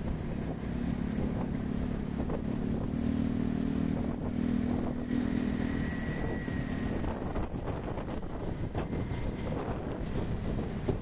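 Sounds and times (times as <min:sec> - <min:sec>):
motorbike and scooter engines: 0:00.0 - 0:11.0
wind rumbling on microphone: 0:00.0 - 0:11.0.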